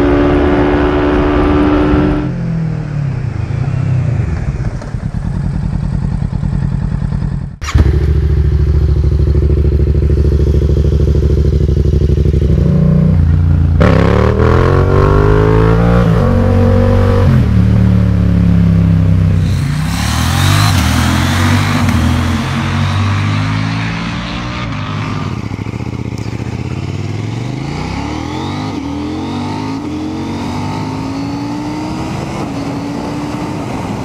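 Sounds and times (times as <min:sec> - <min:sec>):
motorcycle ridden hard: 0:00.0 - 0:34.0
motorcycle engine running: 0:04.1 - 0:31.1
motorcycle passing by: 0:19.4 - 0:34.0.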